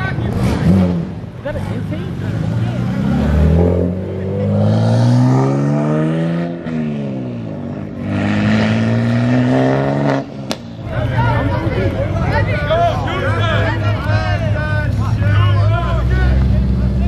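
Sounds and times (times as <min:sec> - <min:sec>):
car engine accelerating hard: 0:00.1 - 0:10.6.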